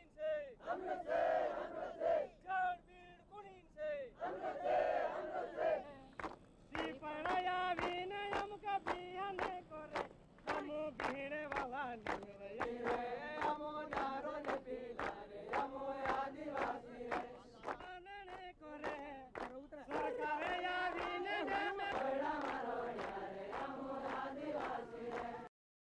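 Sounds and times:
men singing a chant: 4.2 - 6.0, 6.7 - 25.5
hand claps: 6.1 - 25.5.

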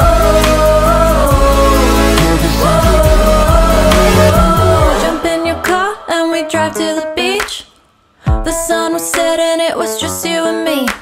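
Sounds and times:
pop music: 0.0 - 7.7, 8.3 - 11.0.

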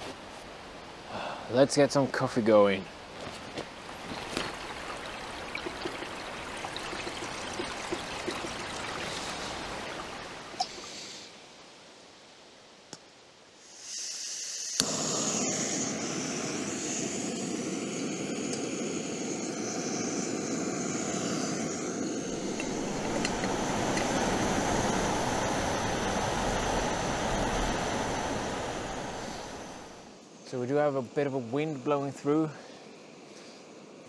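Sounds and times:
soft gas hiss: 0.0 - 34.0
burner rushing: 14.6 - 30.1.

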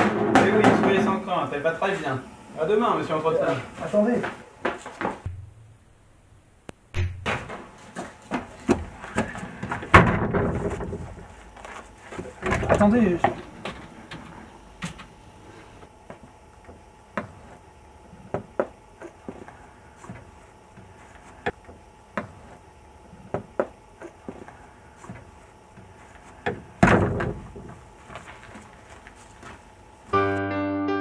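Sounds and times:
door banging shut: 9.9 - 11.2, 26.8 - 27.5.

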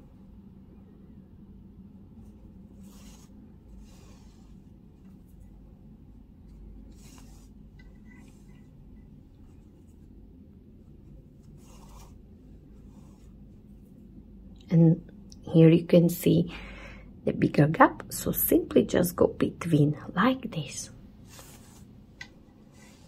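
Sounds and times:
low steady hum: 0.0 - 23.0
yarn swishing through stitches: 2.2 - 14.1, 21.2 - 23.0.

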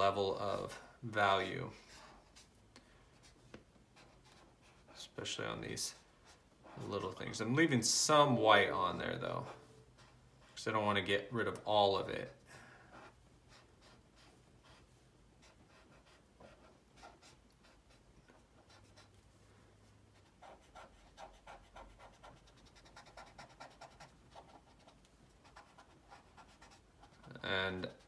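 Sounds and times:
marker scratching on paper: 3.2 - 5.0, 9.4 - 10.6, 12.9 - 19.2, 20.1 - 28.0.

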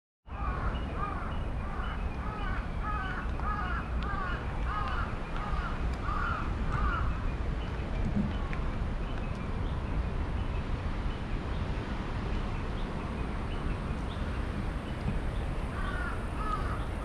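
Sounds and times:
bird calling: 0.3 - 7.2, 15.7 - 17.0.

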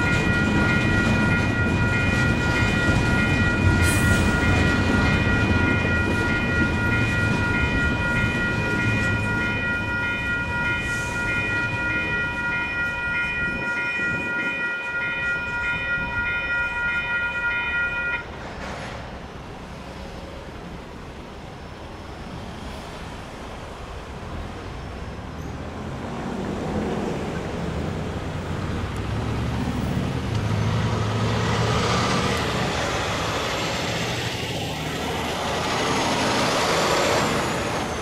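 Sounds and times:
railroad crossing bells ringing: 0.0 - 18.6, 23.6 - 38.0
freight train passing: 0.0 - 38.0.

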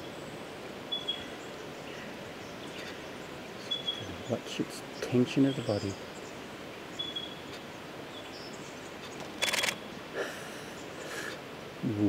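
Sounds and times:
camera shutter burst: 9.3 - 9.8.

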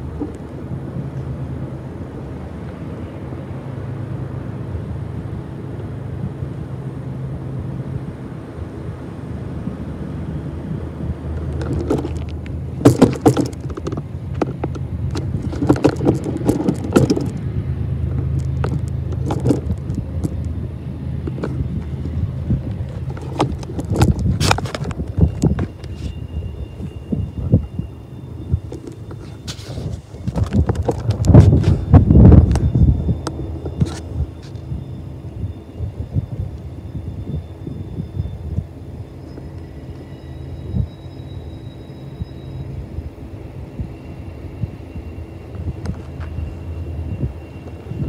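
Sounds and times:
locomotive engine drone: 0.0 - 48.0
sharp knocks and thumps: 11.6 - 17.4.

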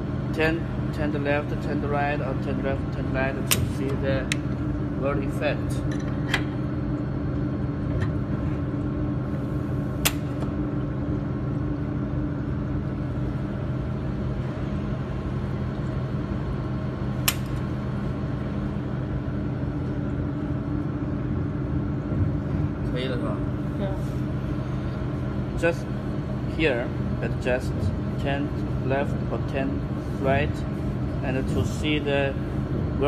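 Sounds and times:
laser welding machine hum: 0.0 - 33.0.

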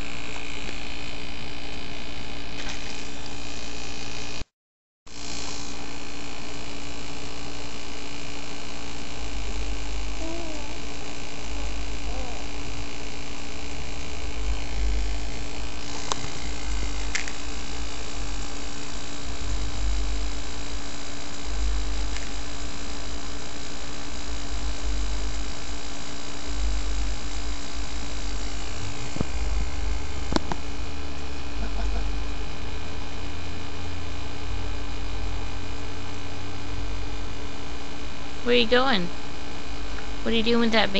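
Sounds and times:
electrical hum: 0.0 - 4.5, 5.1 - 40.9.

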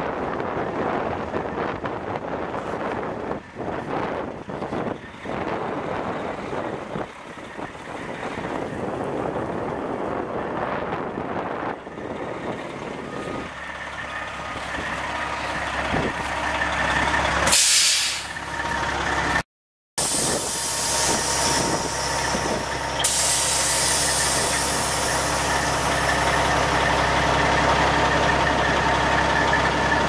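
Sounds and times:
diesel truck engine idling: 0.1 - 19.4, 20.0 - 30.0
compressed air hiss: 17.5 - 18.3, 20.0 - 25.4.

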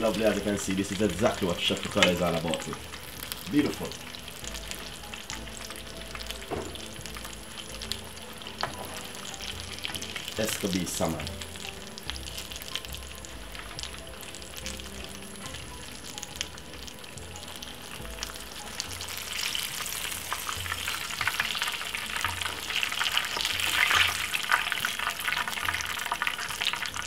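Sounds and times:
fish sizzling in hot oil: 0.0 - 27.0.

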